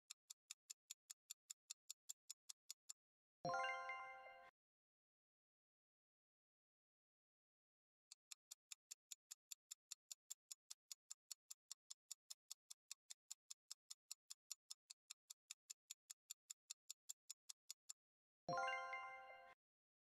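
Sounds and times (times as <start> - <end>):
fast clock ticking: 8.2 - 18.0.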